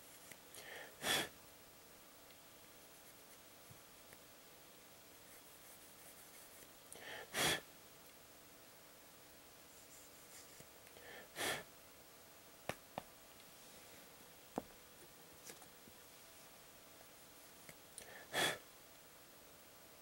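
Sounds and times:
sharp bursts of breath: 0:00.6 - 0:01.3, 0:07.0 - 0:07.6, 0:11.0 - 0:11.7, 0:18.0 - 0:18.6
soft breath intake: 0:00.6 - 0:01.3, 0:07.0 - 0:07.6, 0:11.0 - 0:11.7, 0:18.0 - 0:18.6.

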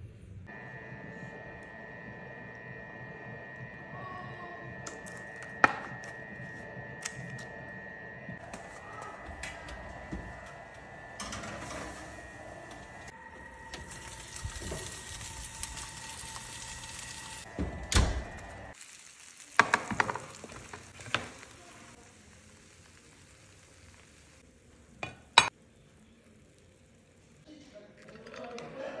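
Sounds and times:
salmon sizzling in hot pan: 0:13.6 - 0:24.6.

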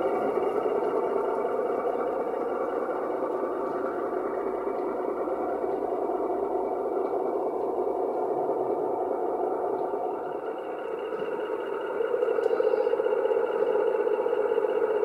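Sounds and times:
model train humming: 0:00.0 - 0:15.0.

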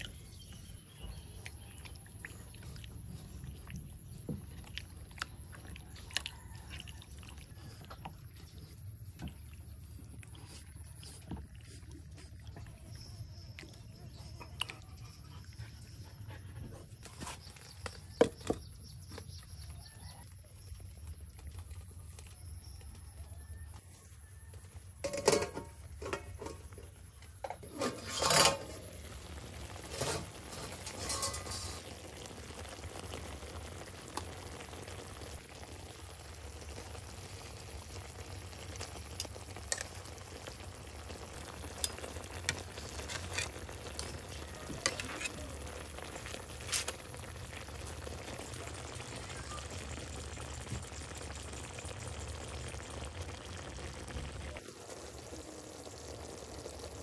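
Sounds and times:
chicken wings sizzling in pan: 0:27.5 - 0:57.0
metal tongs scraping a pan: 0:27.6 - 0:28.9, 0:29.9 - 0:31.9, 0:42.8 - 0:44.1.

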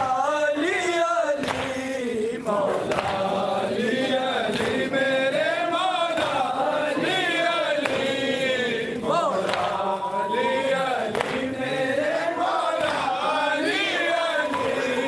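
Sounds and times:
men chanting a lament: 0:00.0 - 0:15.0.

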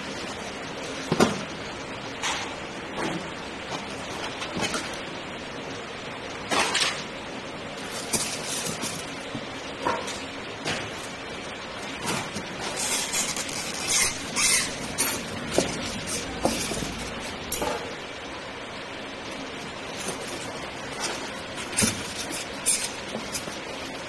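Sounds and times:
steady background hiss: 0:00.0 - 0:24.0.

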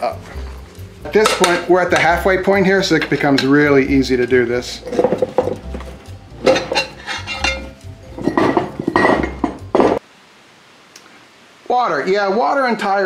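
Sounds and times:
screwdrivers scraping metal wheel rim: 0:06.6 - 0:07.8
faint hiss: 0:10.0 - 0:13.0.

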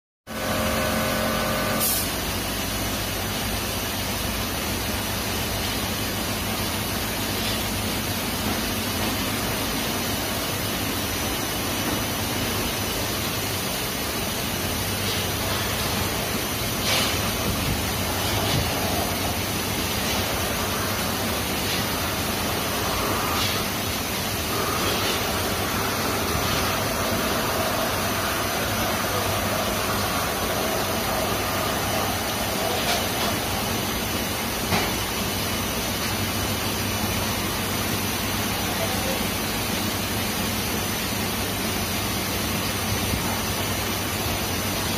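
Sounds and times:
machinery hum: 0:00.3 - 0:44.9
water spray jets hissing: 0:12.4 - 0:34.7.

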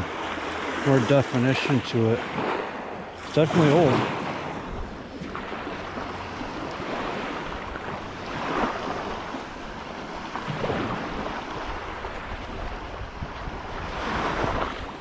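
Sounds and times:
small waves washing on shore: 0:00.0 - 0:15.0.

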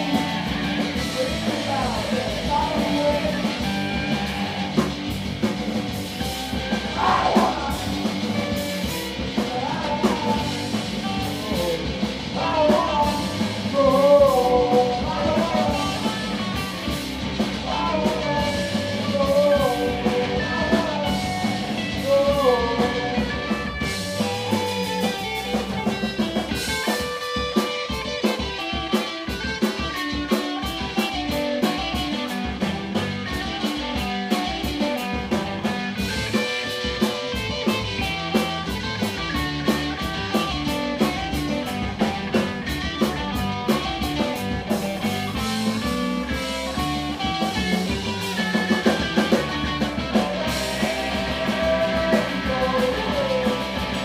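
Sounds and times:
person singing lead vocal: 0:00.0 - 0:04.9, 0:06.7 - 0:26.0, 0:45.0 - 0:54.0
bass guitar: 0:00.0 - 0:54.0
electric guitars: 0:00.0 - 0:54.0.

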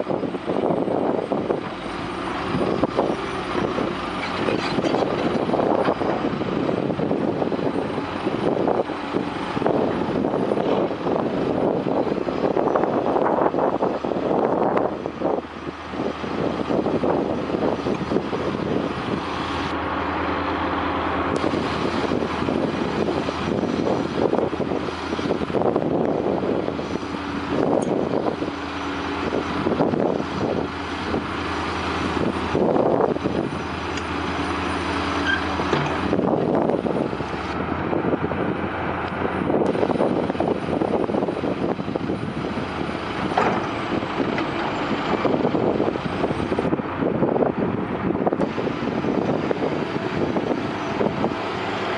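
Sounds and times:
heavy diesel engines droning: 0:00.0 - 0:51.9
knocks and scrapes: 0:04.2 - 0:06.0.

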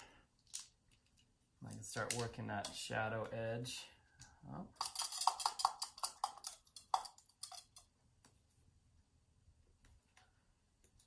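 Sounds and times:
paintbrush handles clicking: 0:04.8 - 0:07.9.

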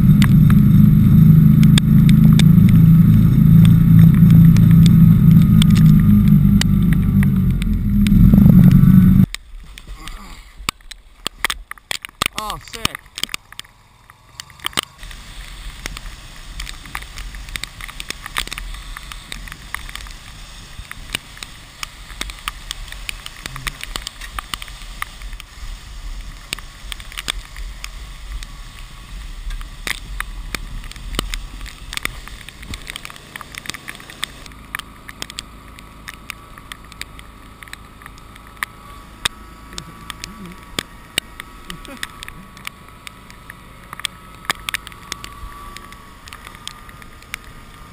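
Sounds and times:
wind and snow rushing: 0:00.0 - 0:11.2
low rumble: 0:00.0 - 0:47.9.

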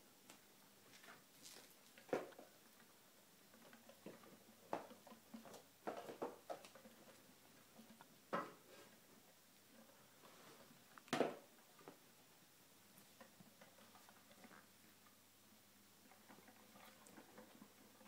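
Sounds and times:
rats scurrying with rustling knocks: 0:00.9 - 0:10.8, 0:16.0 - 0:18.0.

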